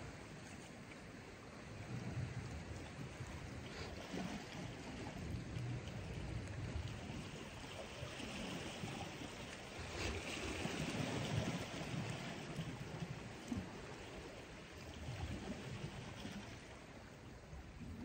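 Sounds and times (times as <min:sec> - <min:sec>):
sea water lapping against rocks: 0:00.0 - 0:18.0
wind rumble on microphone: 0:00.0 - 0:18.0.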